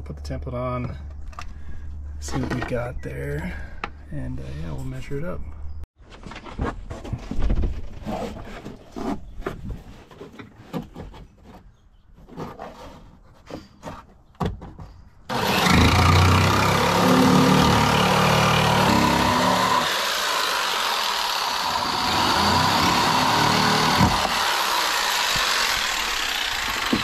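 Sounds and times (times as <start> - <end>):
handling knocks clicks and rustles: 6.1 - 15.2
power tool running: 15.3 - 27.0.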